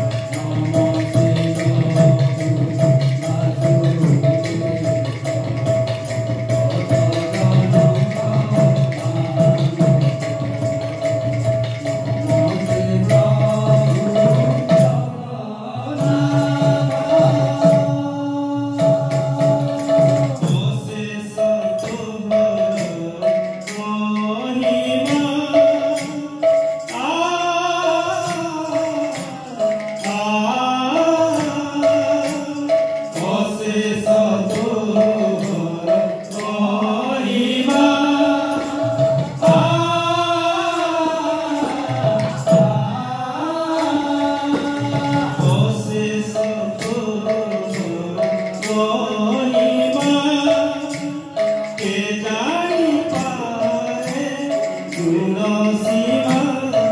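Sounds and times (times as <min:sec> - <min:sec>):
percussion keeping a beat: 0:00.0 - 0:56.9.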